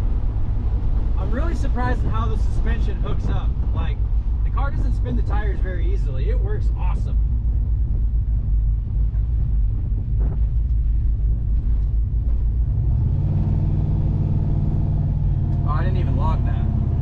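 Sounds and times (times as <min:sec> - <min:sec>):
car engine rumbling from cabin: 0:00.0 - 0:17.0.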